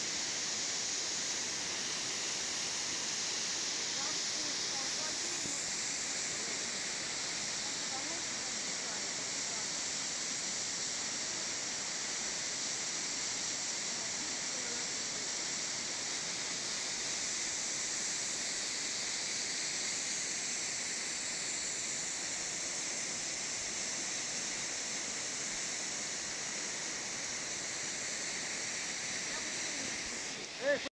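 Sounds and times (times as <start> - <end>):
waterfall rushing: 0.0 - 9.5.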